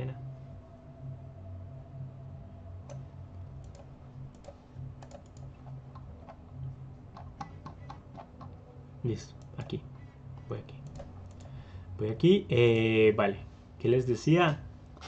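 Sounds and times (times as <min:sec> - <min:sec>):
steady low hum: 0:00.0 - 0:15.0
keyboard and mouse clicks: 0:02.9 - 0:08.6, 0:10.4 - 0:11.6.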